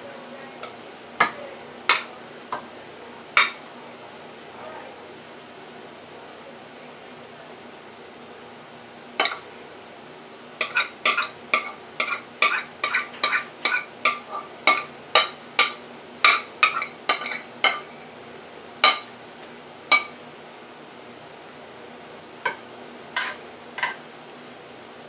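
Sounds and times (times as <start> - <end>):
metal spoon clinking against bowl: 3.4 - 3.6, 9.2 - 9.4, 10.6 - 17.9.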